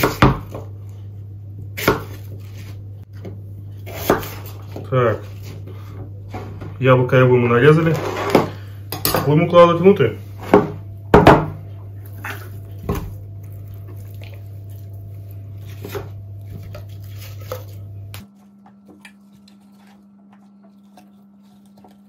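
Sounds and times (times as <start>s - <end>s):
steady low hum: 0.0s - 22.0s
soft wet handling of meat: 11.9s - 22.0s.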